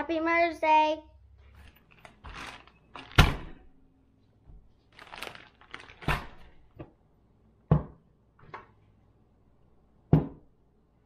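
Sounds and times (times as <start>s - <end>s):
rustling: 1.4s - 3.6s, 4.7s - 6.7s.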